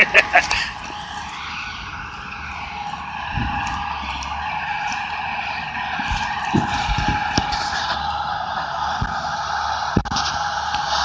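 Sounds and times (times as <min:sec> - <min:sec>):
harvester engine and hydraulics whining: 0:00.0 - 0:11.0.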